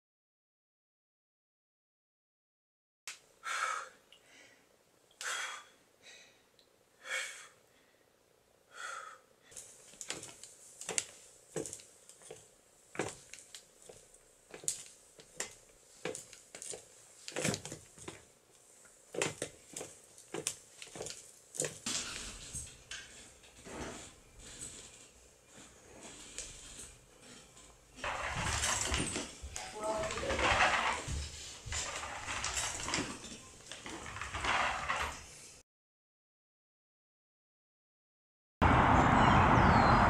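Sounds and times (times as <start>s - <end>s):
person breathing hard and wheezing: 3.4s - 8.1s, 8.7s - 9.6s.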